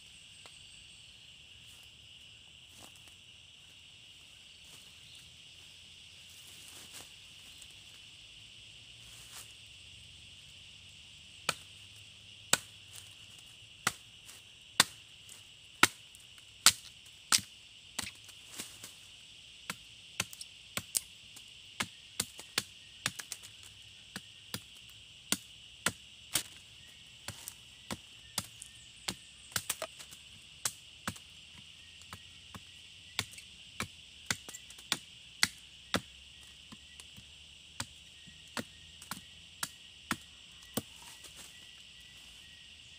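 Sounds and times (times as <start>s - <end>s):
high insect drone: 0.0s - 42.9s
machete chopping wood: 11.4s - 11.7s, 14.8s - 15.0s, 15.8s - 16.0s, 16.6s - 18.2s, 25.3s - 26.6s, 27.3s - 31.2s, 32.1s - 36.1s, 37.8s - 41.1s.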